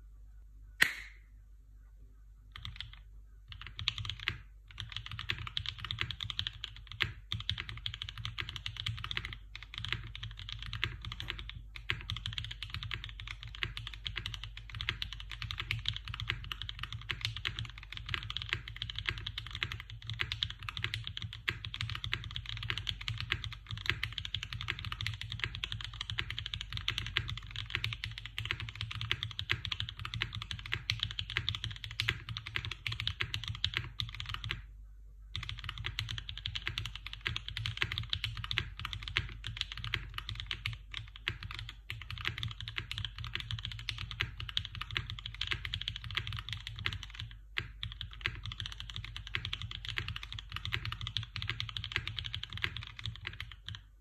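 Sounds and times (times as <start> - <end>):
mechanical keyboard typing: 2.5 - 34.6, 35.3 - 53.9.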